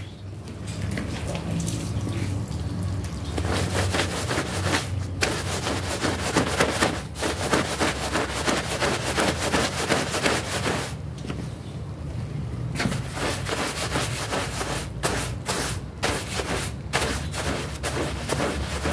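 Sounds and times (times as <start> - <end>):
broom scrubbing wet carpet: 3.4 - 11.0, 12.8 - 18.9.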